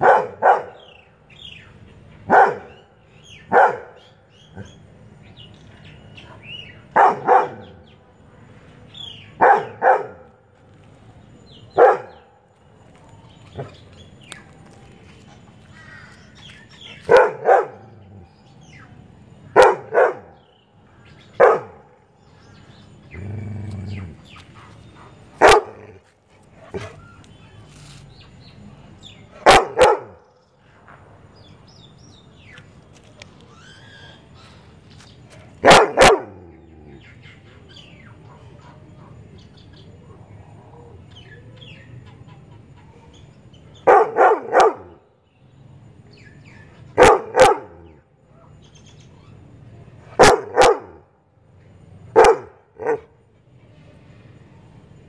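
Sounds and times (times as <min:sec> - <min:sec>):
dog barking: 0:00.0 - 0:00.9, 0:02.3 - 0:02.8, 0:03.5 - 0:04.0, 0:06.9 - 0:07.8, 0:09.4 - 0:10.3, 0:11.7 - 0:12.2, 0:17.0 - 0:18.0, 0:19.6 - 0:20.4, 0:21.4 - 0:21.9, 0:25.4 - 0:26.0, 0:29.4 - 0:30.2, 0:35.6 - 0:36.4, 0:43.8 - 0:45.0, 0:47.0 - 0:48.5, 0:50.1 - 0:51.0, 0:52.1 - 0:53.1
birds chirping: 0:00.0 - 0:55.0.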